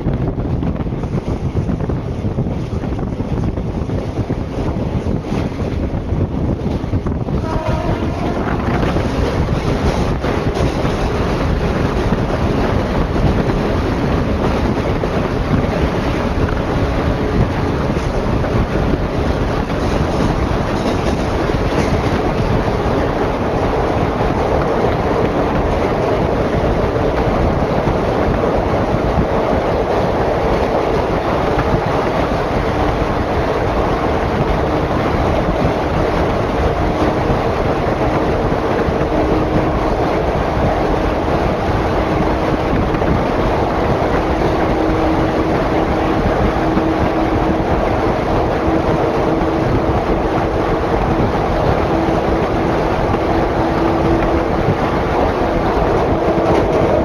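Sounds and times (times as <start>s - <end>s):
train wheels rushing on rail: 0.0s - 57.0s.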